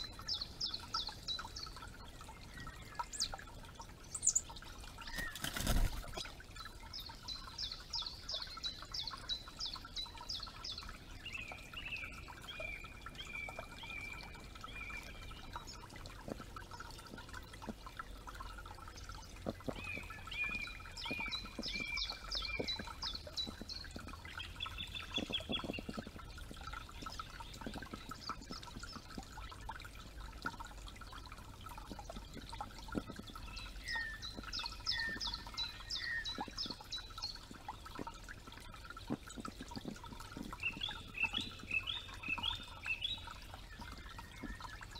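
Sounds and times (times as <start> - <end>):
creek trickling: 0.0 - 44.9
small birds singing: 0.0 - 44.9.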